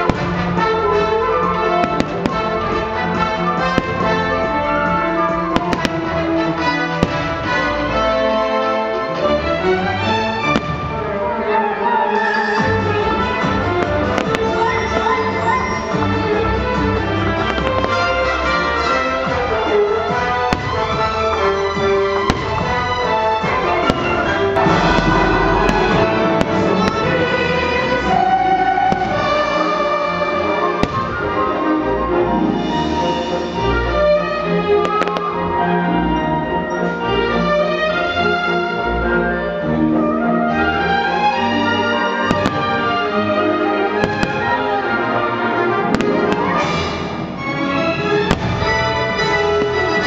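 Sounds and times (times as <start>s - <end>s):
orchestral music: 0.0s - 50.0s
firework bangs: 1.7s - 4.6s, 5.3s - 7.7s, 10.4s - 11.2s, 13.0s - 29.7s, 30.6s - 31.6s, 34.8s - 35.5s, 42.2s - 45.1s, 45.8s - 47.4s, 48.1s - 50.0s
loud show music: 11.8s - 36.6s.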